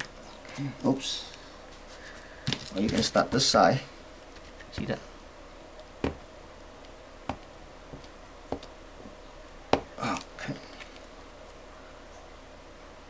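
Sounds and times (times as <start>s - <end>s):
tape rustle: 0.0s - 3.4s.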